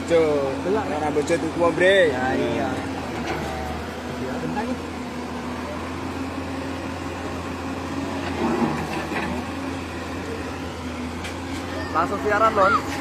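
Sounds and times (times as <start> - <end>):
engine running steadily: 0.0 - 13.0
faint voices: 2.2 - 13.0.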